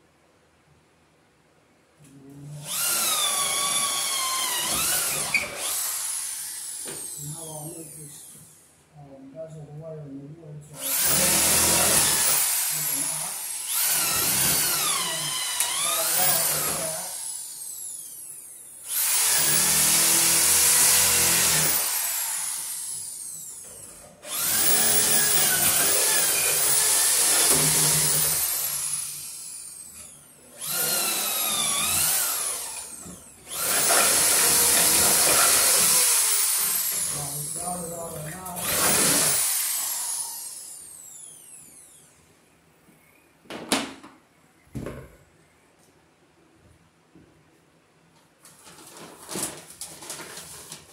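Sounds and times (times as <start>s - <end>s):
electric drill boring into wood: 2.6s - 8.6s, 10.8s - 42.0s.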